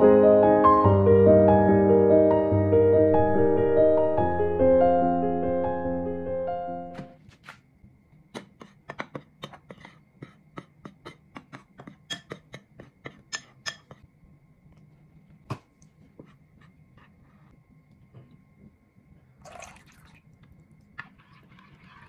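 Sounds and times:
piano music: 0.0s - 7.2s.

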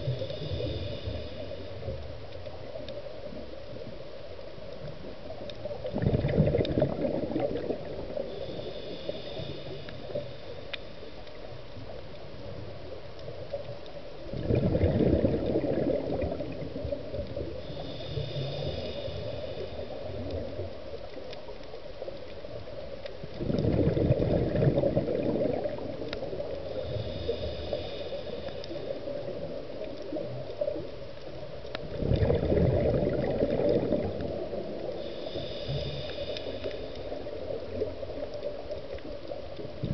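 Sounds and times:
regulator inhalation hiss: 0.0s - 2.0s, 8.0s - 11.6s, 17.5s - 21.2s, 26.6s - 29.8s, 34.8s - 37.8s
exhaled bubbles gurgling: 4.8s - 10.4s, 11.4s - 39.9s.

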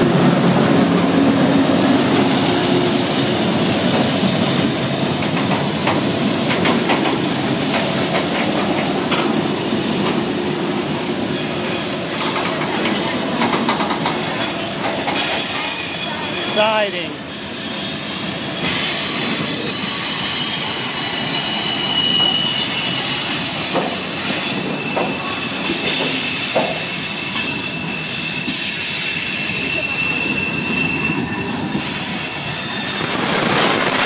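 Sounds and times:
train wheels rumbling and clicking: 0.0s - 16.5s, 17.4s - 34.0s
wheels squealing on rails: 11.2s - 34.0s
locomotive engines droning: 29.2s - 34.0s.

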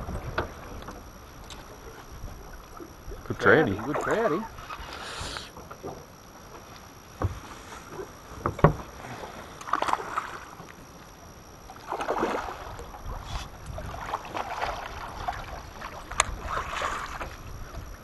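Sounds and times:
water splashing: 1.4s - 6.0s, 9.6s - 10.7s, 11.7s - 17.6s.

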